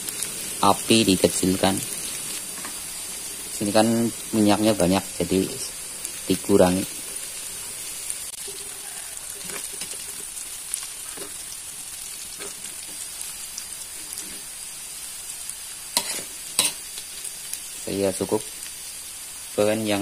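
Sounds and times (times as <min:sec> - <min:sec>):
food sizzling in oil: 0:00.0 - 0:20.0
metal ladle scraping wok: 0:16.0 - 0:16.8.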